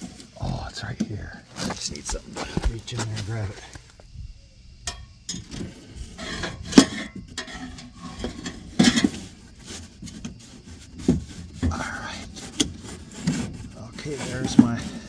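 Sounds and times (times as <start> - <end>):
scraping and knocking on plastic: 5.4 - 15.0.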